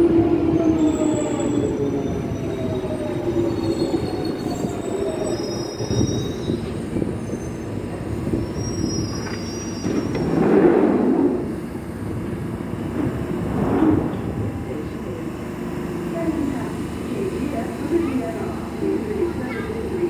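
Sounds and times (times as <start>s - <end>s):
train motor whine: 0.0s - 20.0s
brake squeals: 0.7s - 10.4s.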